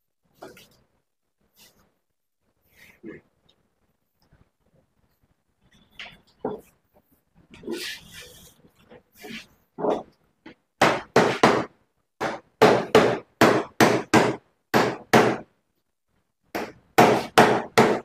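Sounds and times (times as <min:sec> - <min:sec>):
wooden mallet knocking sheet metal: 0:10.8 - 0:15.4, 0:16.6 - 0:18.0.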